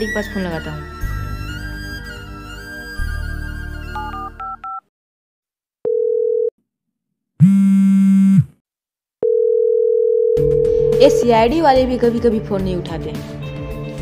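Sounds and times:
steady phone tone: 5.9s - 6.5s, 9.2s - 11.2s
buzzing phone tone: 7.4s - 8.5s.

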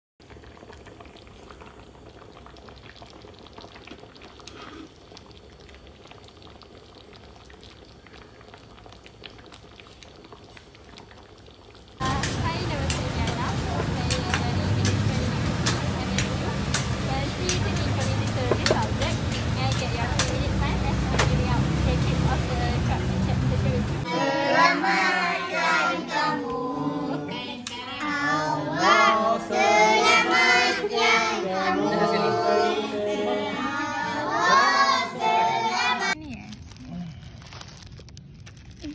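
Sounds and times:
broth boiling and bubbling: 0.2s - 24.1s, 36.1s - 38.9s
children singing together: 24.0s - 36.2s.

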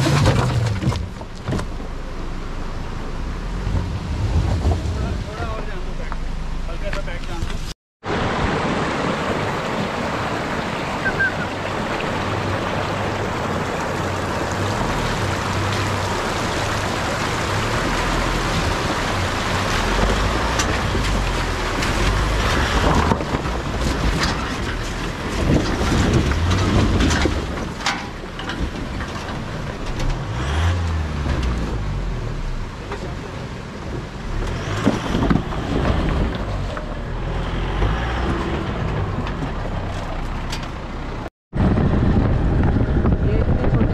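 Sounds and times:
rushing stream water: 8.0s - 41.3s.

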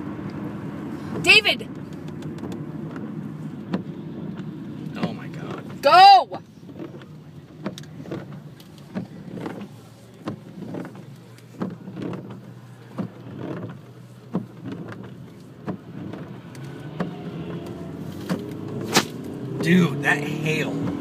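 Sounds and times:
road and engine noise inside car: 0.0s - 21.0s.

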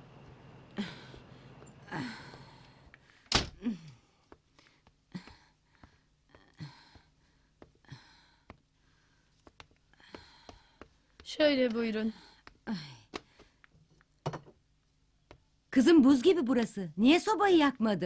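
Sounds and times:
wooden door shutting: 3.3s - 3.6s
soft footsteps on wooden floor: 4.2s - 14.6s.

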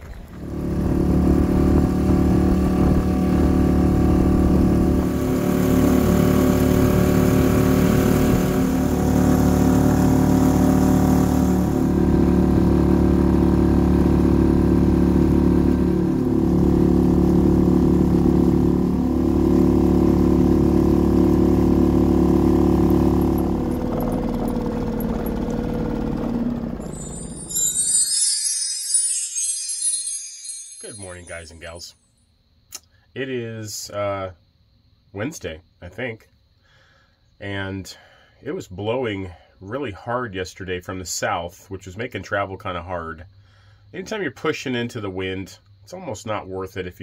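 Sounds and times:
outboard motor running: 0.1s - 27.0s.

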